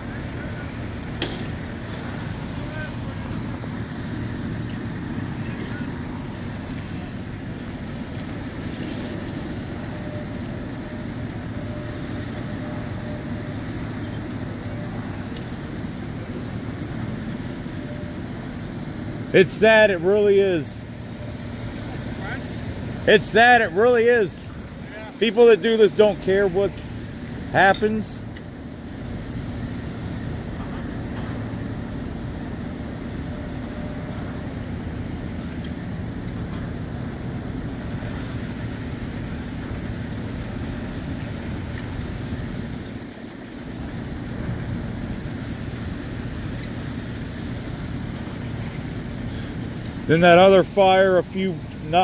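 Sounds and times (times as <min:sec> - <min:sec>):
diesel engines rumbling: 0:00.0 - 0:52.0.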